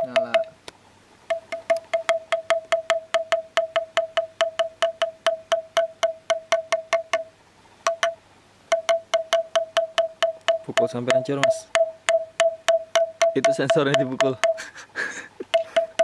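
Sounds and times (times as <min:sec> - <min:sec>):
hammer tapping bamboo tube: 0:00.0 - 0:00.6, 0:01.3 - 0:07.3, 0:07.9 - 0:14.8, 0:15.4 - 0:16.0.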